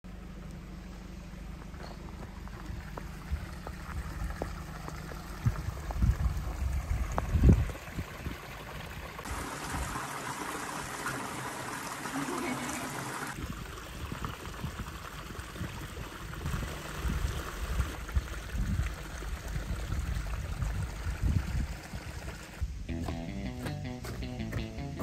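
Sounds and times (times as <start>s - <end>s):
low rumbling outdoor ambience: 0.0s - 11.9s
water trickling in stream: 1.4s - 22.6s.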